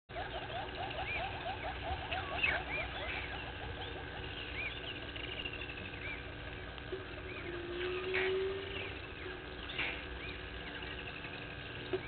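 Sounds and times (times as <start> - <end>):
rapid rising bird notes: 0.1 - 12.0.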